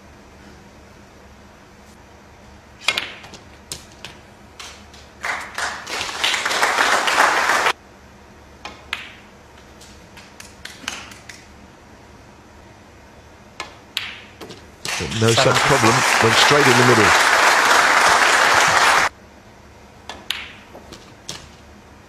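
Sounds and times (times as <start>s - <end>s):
audience applause: 5.2s - 7.8s, 14.9s - 19.1s.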